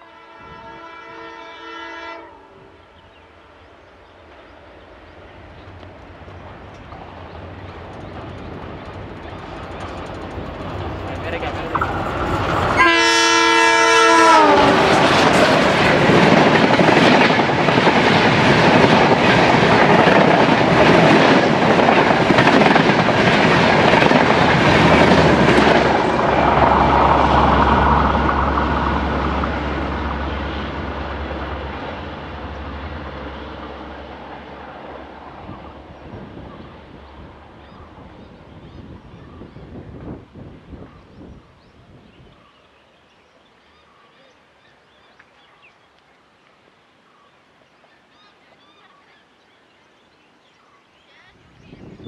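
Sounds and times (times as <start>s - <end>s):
train horn: 0.0s - 3.0s, 12.7s - 15.6s
train coaches rushing by: 2.8s - 41.2s
wheels clacking on rails: 5.1s - 38.3s.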